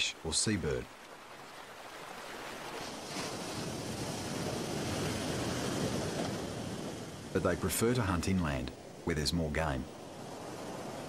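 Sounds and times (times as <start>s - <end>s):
ocean surf washing over rocks: 0.0s - 11.0s.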